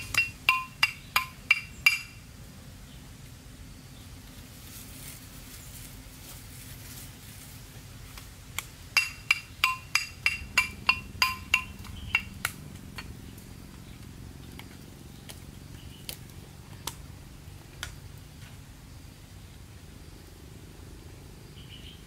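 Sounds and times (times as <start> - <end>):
pestle clinking in metal mortar: 0.0 - 2.2, 9.0 - 12.4.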